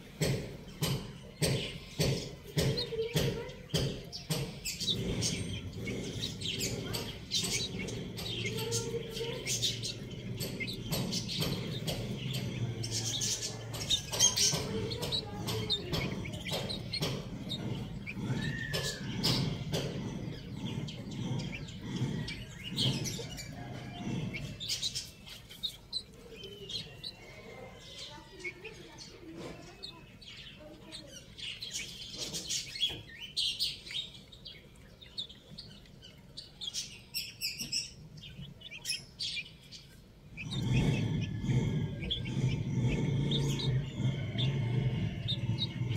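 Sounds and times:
beaks tapping on concrete: 0.0 - 45.9
chicks peeping: 0.0 - 45.9
low clucks: 0.0 - 45.9.

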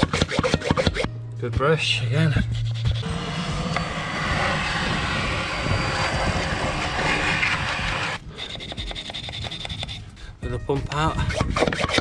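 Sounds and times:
vacuum cleaner sucking dust: 3.0 - 8.2.

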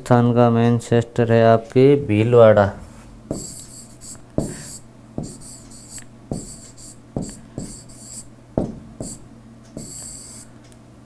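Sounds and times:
low steady hum: 0.0 - 11.0
stylus scratchy strokes: 3.3 - 8.3, 9.8 - 10.5
stylus tapping on screen: 3.3 - 10.4.

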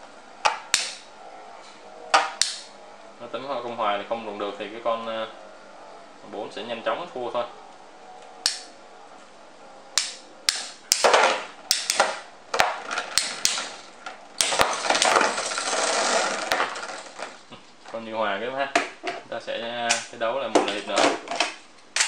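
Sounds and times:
spinning tops clacking: 10.0 - 17.4
spinning tops whirring and scraping: 10.0 - 17.5.

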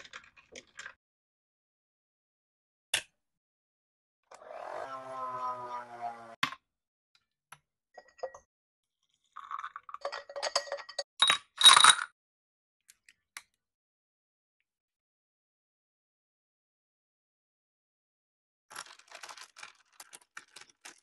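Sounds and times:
ice cubes clinking in a glass: 9.4 - 12.1.

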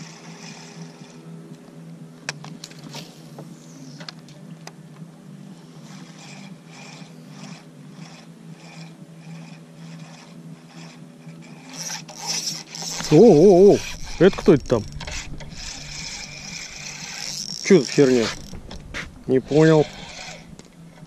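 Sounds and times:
fishing reel being cranked: 0.0 - 1.2, 5.7 - 21.0.

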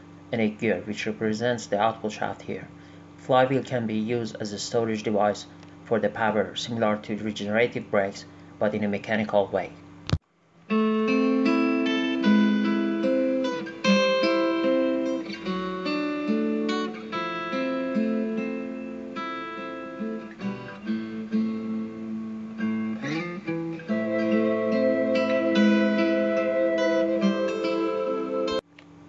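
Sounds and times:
acoustic guitar picking: 10.7 - 28.6.

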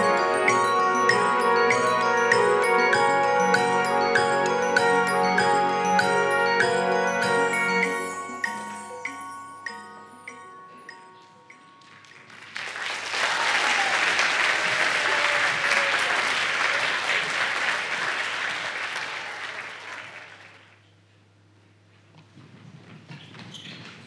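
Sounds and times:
mallet percussion notes: 0.0 - 12.4
audience applause: 11.9 - 20.8.

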